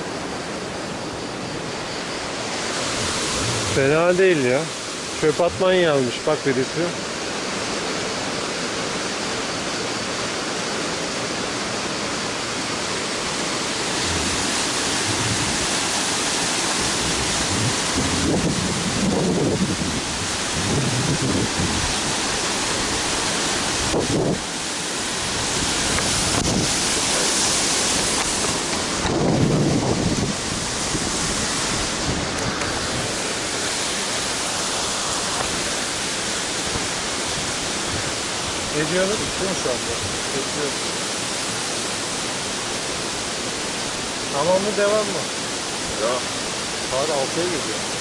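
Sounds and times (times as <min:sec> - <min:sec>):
waterfall rushing: 0:00.0 - 0:48.0.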